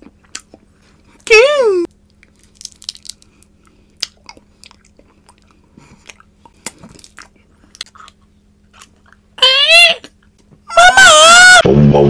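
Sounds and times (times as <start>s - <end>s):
candy crunching in mouth: 2.1s - 9.2s.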